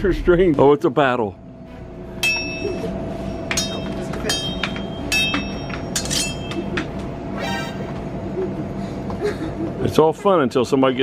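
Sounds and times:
metallic sword clangs: 0:03.5 - 0:06.6.

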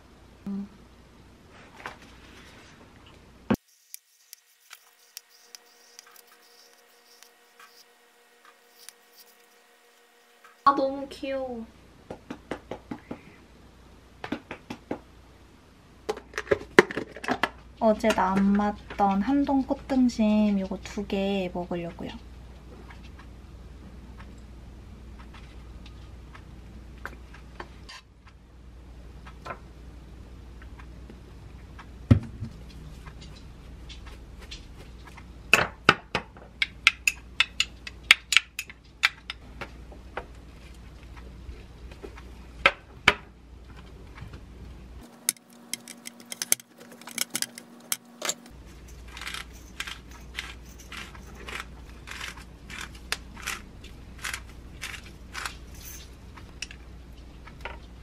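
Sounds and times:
pepper grinder ratcheting clicks: 0:45.2 - 0:53.6, 0:54.2 - 0:55.6.

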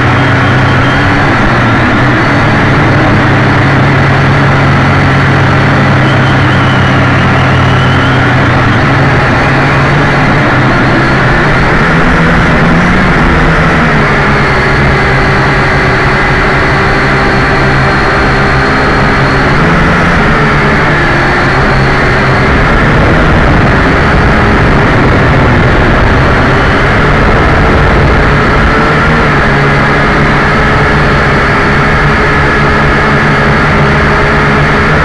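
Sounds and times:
quadcopter motors whining: 0:00.0 - 0:35.0.

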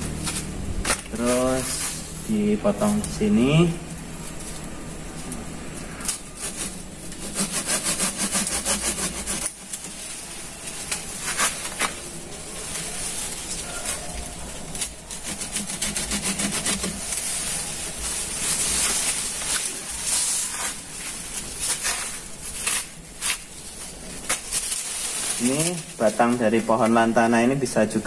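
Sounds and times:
hand saw rasping through wood: 0:06.4 - 0:09.7, 0:15.2 - 0:17.0.

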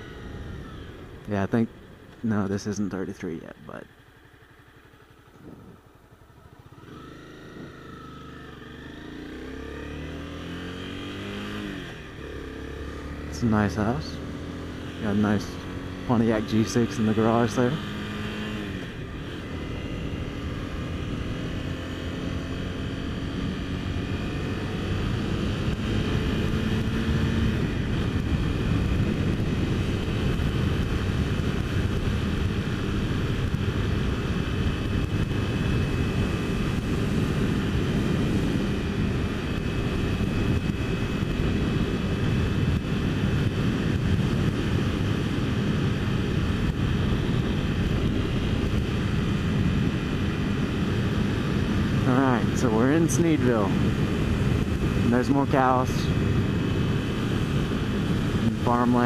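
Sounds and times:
motorcycle engine accelerating: 0:00.0 - 0:59.0
wind rushing over microphone: 0:13.4 - 0:59.0.

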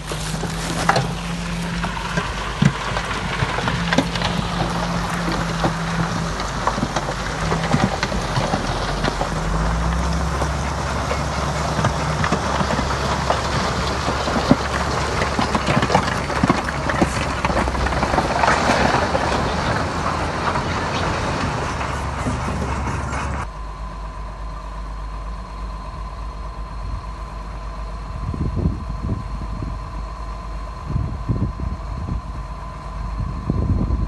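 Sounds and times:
clanking metal and rock: 0:00.0 - 0:23.5
diesel engine drone: 0:00.0 - 0:34.0.

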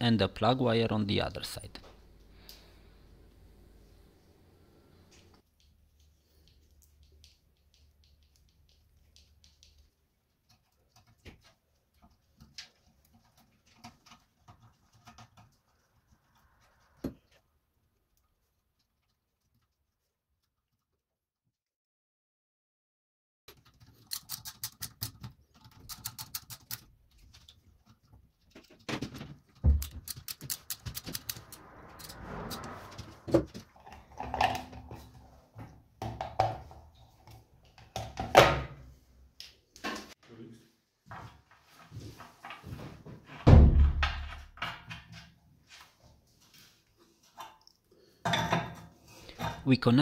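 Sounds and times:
faint clicks and rustles of wires: 0:05.1 - 0:20.8, 0:23.5 - 0:31.6
screwdriver clicking on terminals: 0:29.8 - 0:32.2.

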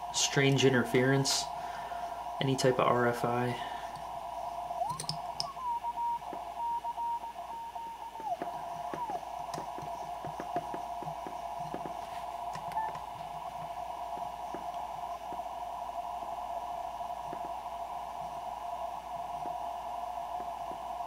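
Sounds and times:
radio hiss: 0:00.0 - 0:21.0
sliding morse tone: 0:04.1 - 0:15.5
radio clicks: 0:04.8 - 0:15.5.

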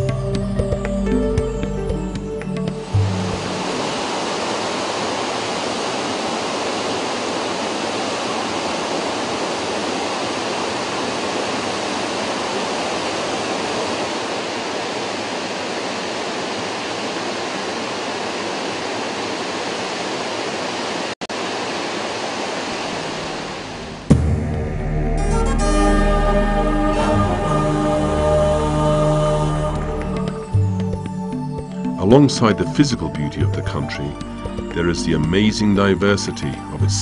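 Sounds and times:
waterfall rushing: 0:02.6 - 0:24.2.

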